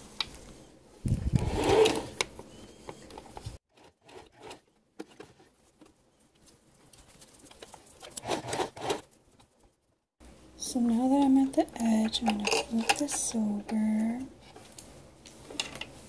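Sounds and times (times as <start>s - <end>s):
sewing machine stitching: 8.2s - 9.0s.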